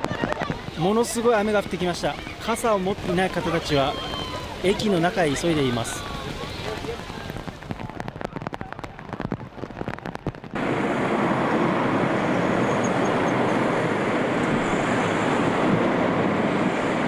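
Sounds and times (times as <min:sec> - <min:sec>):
heavy rain hissing: 0:00.0 - 0:10.0
irregular taps and patter: 0:06.2 - 0:10.6.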